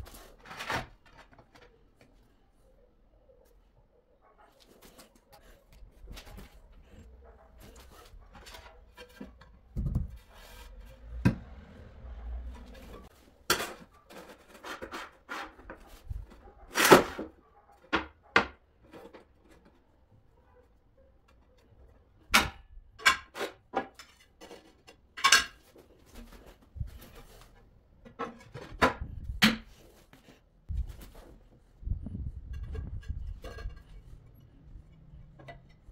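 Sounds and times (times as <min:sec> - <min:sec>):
manual tile cutter on tile: 0:13.7 - 0:15.9.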